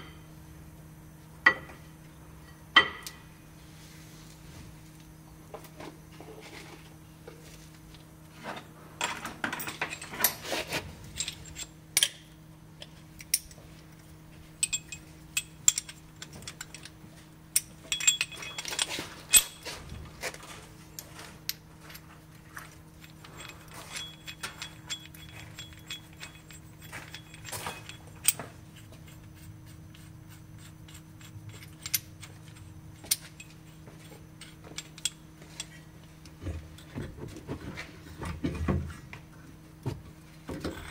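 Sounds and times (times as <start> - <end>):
steady low hum: 0.0 - 40.9
metal tools clinking and scraping: 9.0 - 12.2, 14.6 - 17.0, 17.6 - 35.9.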